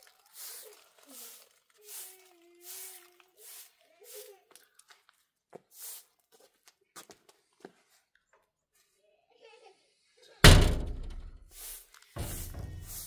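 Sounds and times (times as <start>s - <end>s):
loud thud: 10.4s - 11.5s.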